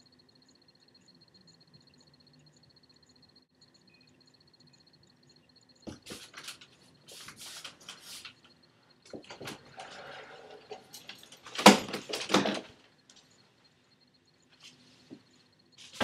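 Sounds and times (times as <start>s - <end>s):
door opening: 9.1s - 12.8s.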